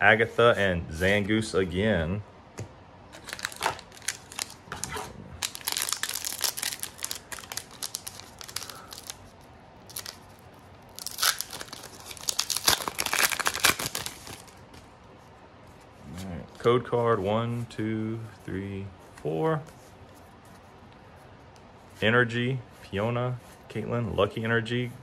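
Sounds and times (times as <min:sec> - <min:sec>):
foil wrapper crinkling and tearing: 0:03.2 - 0:14.6.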